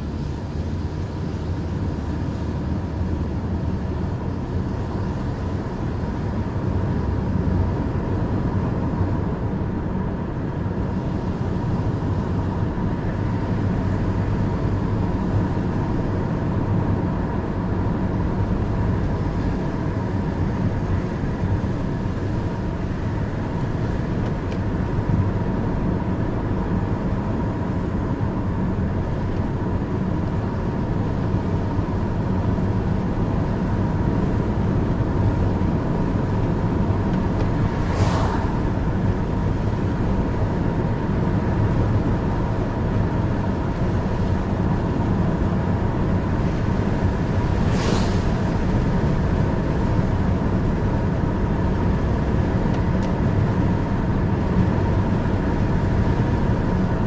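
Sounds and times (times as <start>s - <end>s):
car cabin road and engine noise: 0.0s - 57.0s
tyres on wet asphalt: 0.0s - 57.0s.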